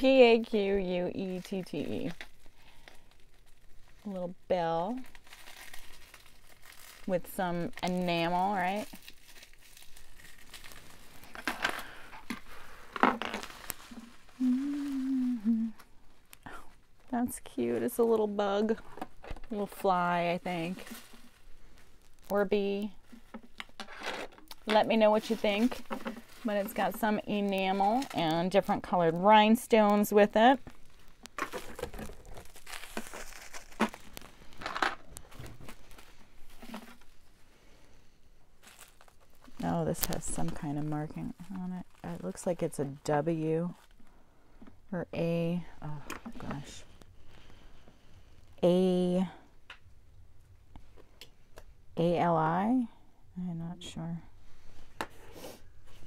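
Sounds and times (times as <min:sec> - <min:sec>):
wrapping crinkling and rustling: 0:00.0 - 0:51.7
woman humming: 0:14.4 - 0:15.8.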